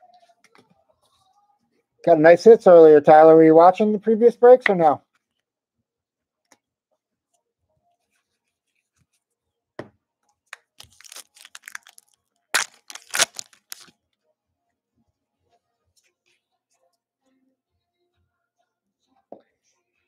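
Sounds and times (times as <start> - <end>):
foil wrapper tearing and crinkling: 10.6 - 13.9.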